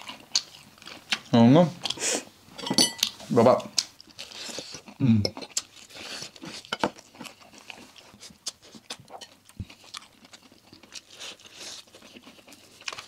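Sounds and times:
crunching fried chicken: 3.7s - 13.0s.

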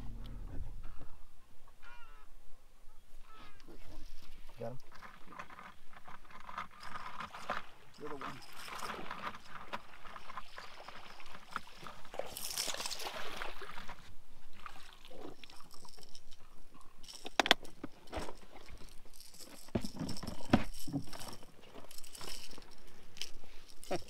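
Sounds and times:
lure and hooks rattling: 4.8s - 13.2s, 15.1s - 24.0s
fish shaking on line: 5.1s - 14.0s, 14.6s - 24.0s.

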